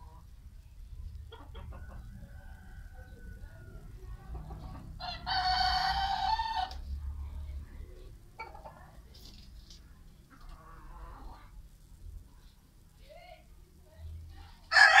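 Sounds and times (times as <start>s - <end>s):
chickens clucking softly: 0.0s - 11.7s
rooster crowing: 5.0s - 6.7s, 14.7s - 15.0s.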